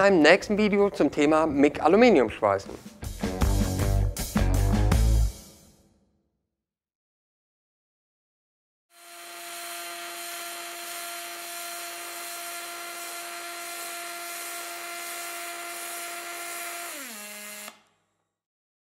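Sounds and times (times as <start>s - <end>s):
welder buzzing hum: 8.9s - 17.9s.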